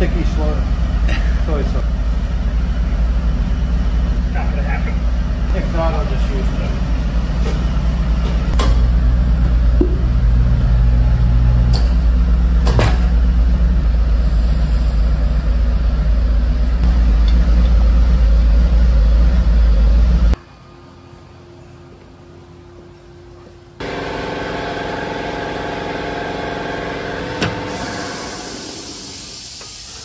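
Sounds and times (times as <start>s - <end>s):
low machine hum: 0.0s - 30.0s.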